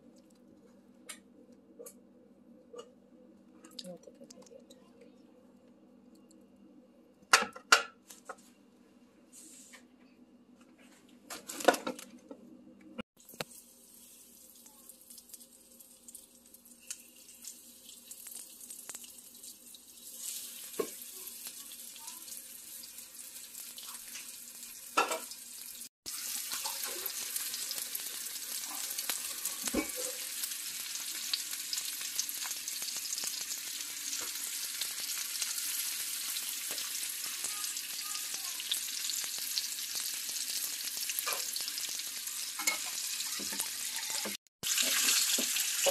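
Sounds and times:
chicken sizzling in a skillet: 13.2 - 45.9.

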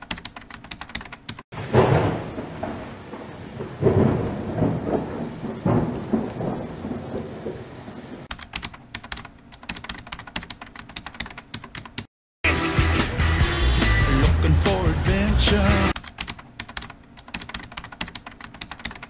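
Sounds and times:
fast sharp clicks: 15.9 - 19.0.

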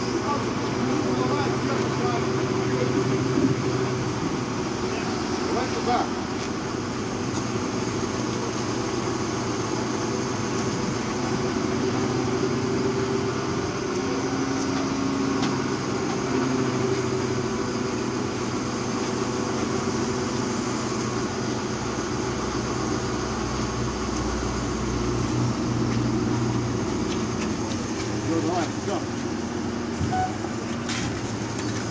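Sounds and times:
crane engine running: 0.0 - 31.9
higher mechanical tone: 29.9 - 30.7.

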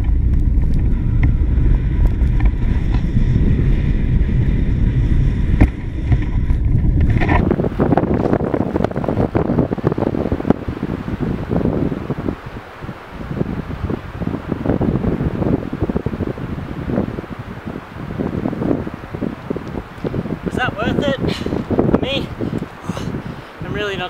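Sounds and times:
rough rustle with crackles: 0.0 - 10.7
wind buffeting microphone: 0.0 - 24.0.

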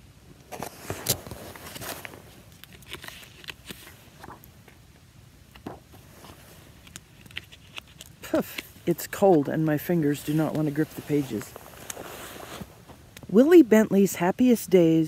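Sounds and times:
paper pages rustling and turning: 0.5 - 4.8, 5.5 - 13.0.

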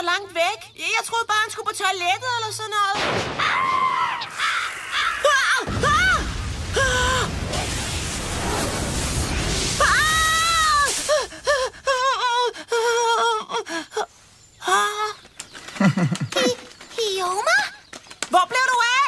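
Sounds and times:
broad rustling rumble: 5.7 - 12.0.

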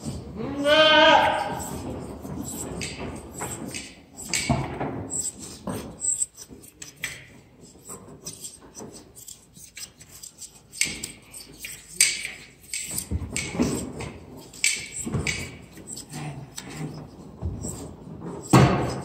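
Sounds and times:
shears snipping fleece: 1.3 - 4.5, 7.8 - 17.0.

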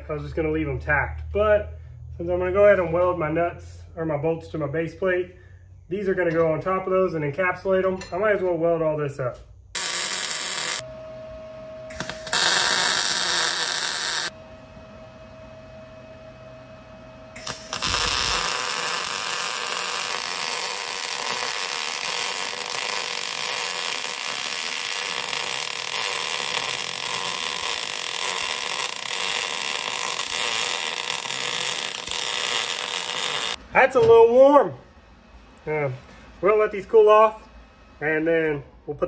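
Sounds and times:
faint hum: 0.0 - 39.0
welding crackling hiss: 9.8 - 10.8, 11.9 - 14.3, 17.4 - 33.6.

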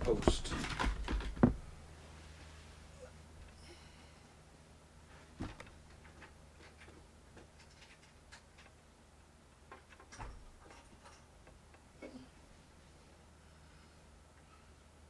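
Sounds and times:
soft knocks: 0.0 - 1.7
low steady hum: 0.0 - 15.0.

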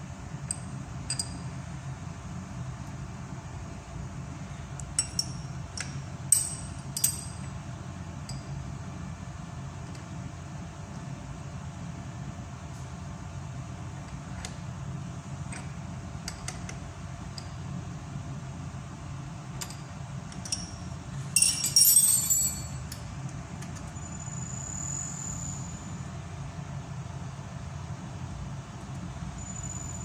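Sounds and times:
machine low hum: 0.0 - 30.0
metal clinking: 6.3 - 7.5, 19.6 - 23.0.

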